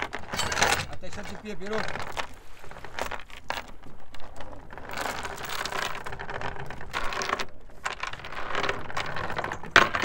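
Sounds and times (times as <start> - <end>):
metal chain rattling and clinking: 0.0 - 10.0.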